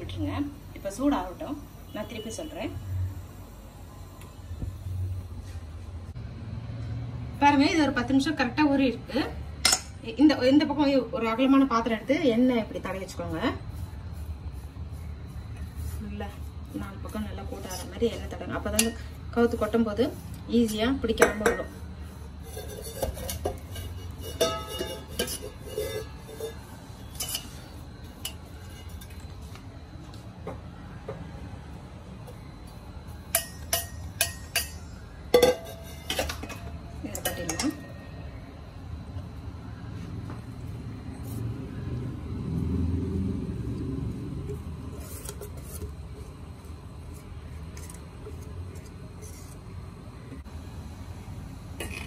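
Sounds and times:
whisk scraping metal tin: 22.2s - 29.2s
metal vessel clinking and knocking: 22.6s - 26.6s, 33.3s - 37.8s.

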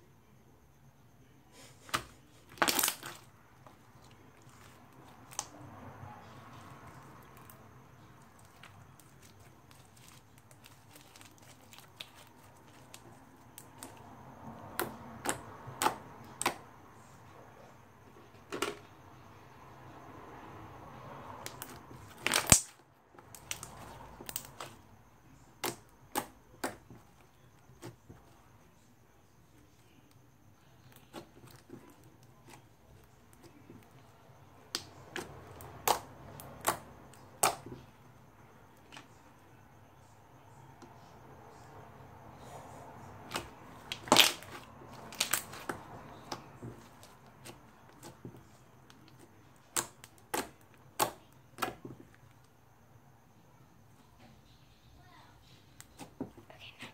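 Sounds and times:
slime popping: 1.9s - 3.2s, 8.3s - 14.0s, 21.4s - 24.8s, 43.2s - 48.2s
slime squishing with air pops: 21.4s - 24.8s, 34.7s - 37.8s, 43.2s - 48.4s, 49.0s - 51.9s.

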